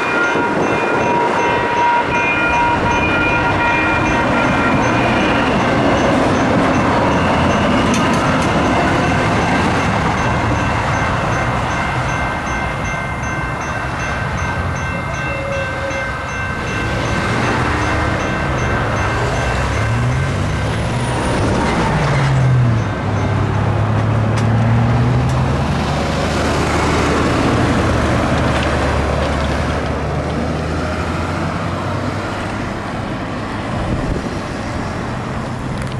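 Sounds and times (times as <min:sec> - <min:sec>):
steady road noise: 0:00.0 - 0:35.9
car and truck engines accelerating: 0:16.5 - 0:35.9.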